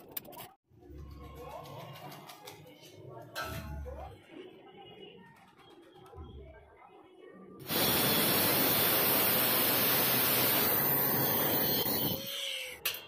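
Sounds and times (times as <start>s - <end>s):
grinder whining: 7.6s - 12.4s
angle grinder cutting metal pipe: 7.7s - 12.3s.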